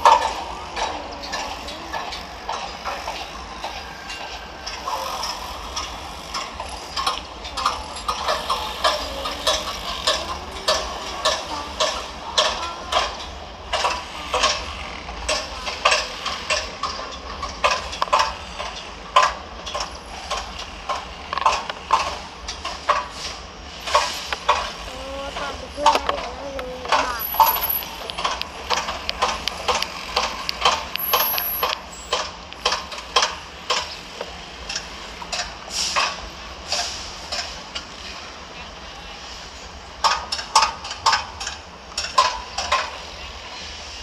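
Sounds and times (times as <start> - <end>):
sharp knocks and clicks: 6.4 - 23.1, 25.4 - 37.5.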